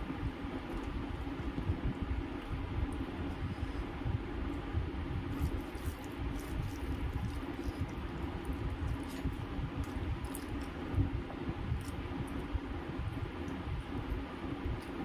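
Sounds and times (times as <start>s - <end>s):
steady low rumble: 0.0s - 15.0s
wet squishing of rice: 4.5s - 15.0s.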